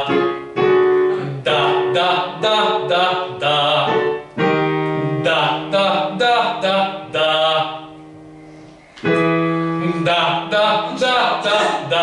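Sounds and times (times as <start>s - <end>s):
digital piano chords: 0.0s - 12.0s
man singing vocal exercise: 1.2s - 4.2s, 5.2s - 8.0s, 9.8s - 12.0s.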